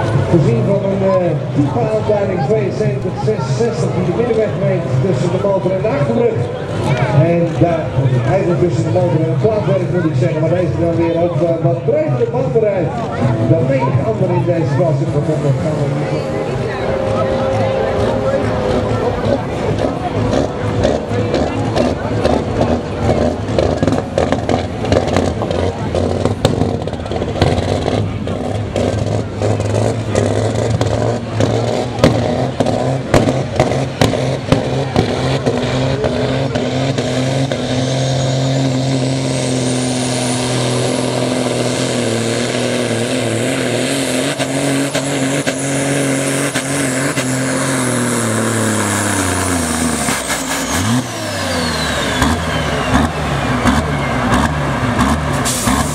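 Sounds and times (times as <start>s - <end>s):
engine crackles: 0.0s - 55.9s
tractor engine at high revs: 0.0s - 55.9s
high whine: 13.2s - 22.1s.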